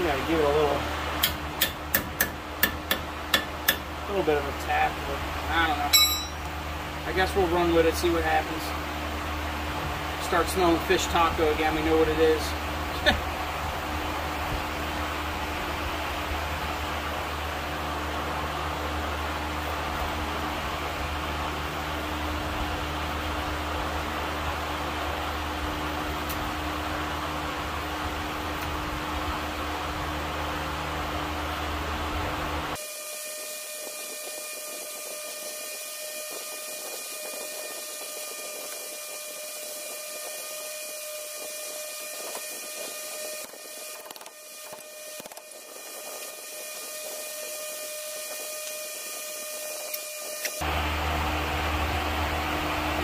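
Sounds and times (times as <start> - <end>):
low hum: 0.8 - 7.1.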